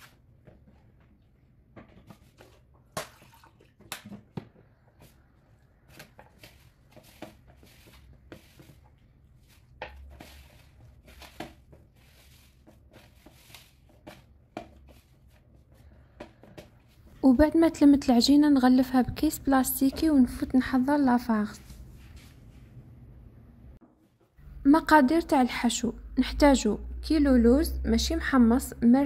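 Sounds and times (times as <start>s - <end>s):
hands squishing pastry dough: 0.0s - 17.1s.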